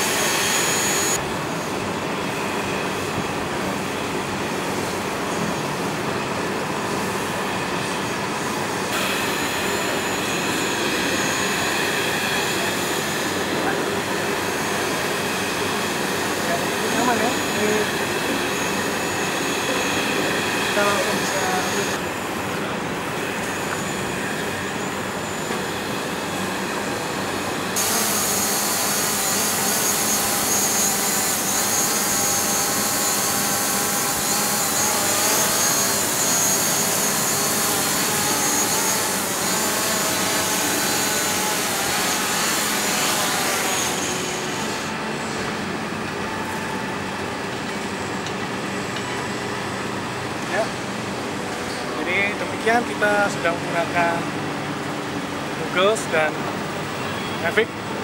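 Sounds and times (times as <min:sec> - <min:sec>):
drone propellers buzzing: 0:00.0 - 0:01.2.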